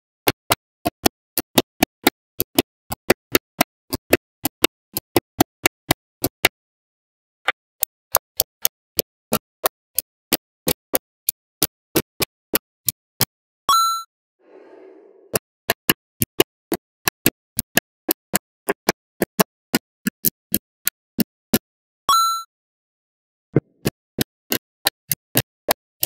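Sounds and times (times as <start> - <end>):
magnetic balls clicking: 0.2 - 6.5, 7.5 - 13.3, 15.3 - 21.6.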